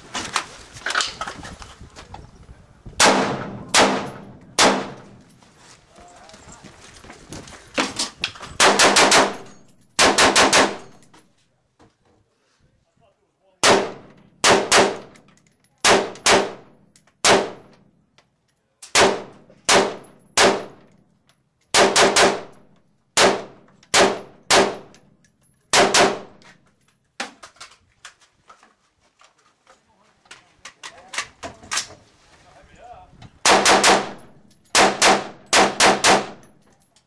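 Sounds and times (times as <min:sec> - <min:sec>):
rifle shots: 0:03.0 - 0:05.2, 0:08.6 - 0:11.0, 0:13.6 - 0:15.1, 0:15.8 - 0:17.7, 0:18.9 - 0:20.8, 0:21.7 - 0:22.6, 0:23.2 - 0:24.9, 0:25.7 - 0:26.4, 0:33.4 - 0:36.4.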